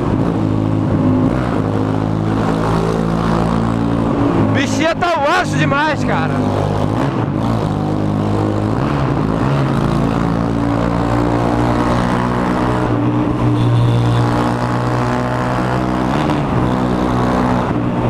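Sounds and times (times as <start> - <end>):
motorcycle engine at speed in tunnel: 0.0 - 4.6, 5.2 - 18.0.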